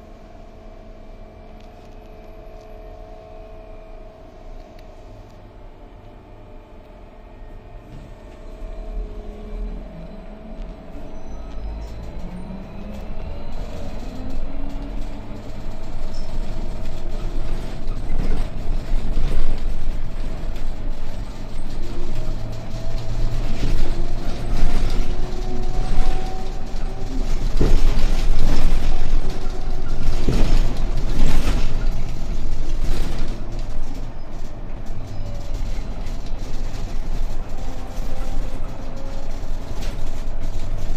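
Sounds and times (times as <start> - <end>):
low road rumble: 6.0 - 40.9
knocks and rattles: 13.9 - 40.9.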